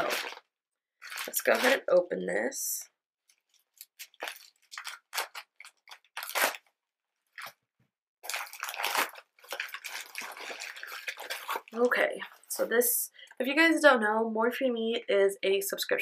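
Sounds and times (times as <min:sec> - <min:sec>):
packaging crinkling and rustling: 0:00.0 - 0:01.8, 0:03.3 - 0:06.7, 0:08.2 - 0:12.6.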